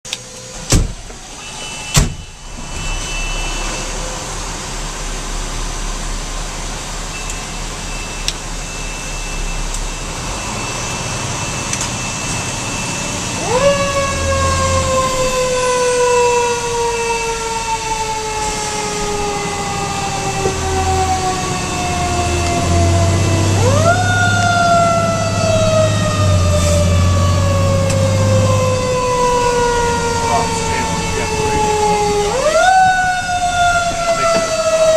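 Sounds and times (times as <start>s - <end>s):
engine running rumble: 2.2s - 34.9s
mechanical siren winding down: 7.1s - 34.9s.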